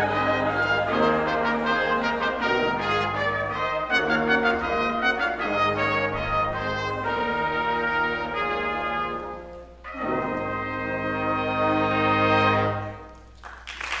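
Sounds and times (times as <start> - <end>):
applause: 13.2 - 14.0.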